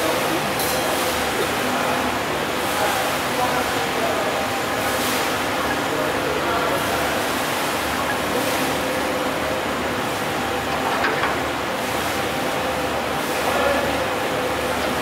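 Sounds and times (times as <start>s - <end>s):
churning water: 0.0s - 15.0s
ship engines rumbling: 0.0s - 15.0s.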